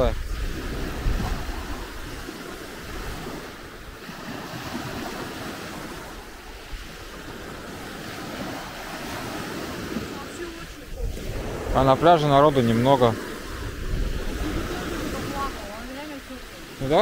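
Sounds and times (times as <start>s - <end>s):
small waves washing onto beach: 0.0s - 17.0s
wind on microphone: 0.0s - 17.0s.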